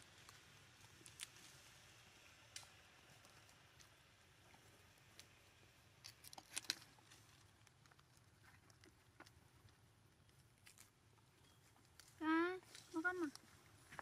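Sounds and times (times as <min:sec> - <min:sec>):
monkeys chewing fruit clicks: 0:00.0 - 0:14.0.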